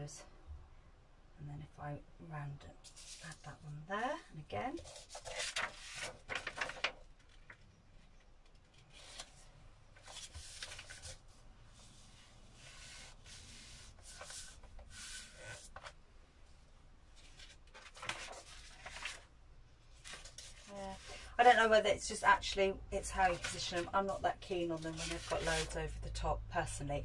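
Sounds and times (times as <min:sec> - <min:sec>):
string and paper rasping: 0:10.0 - 0:15.9, 0:23.0 - 0:25.8.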